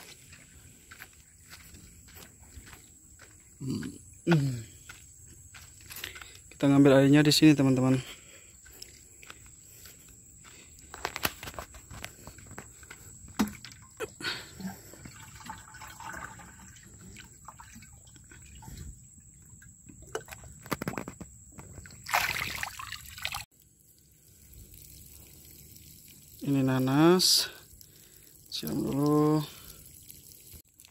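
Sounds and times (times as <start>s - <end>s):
water sloshing and splashing: 11.4s - 23.5s.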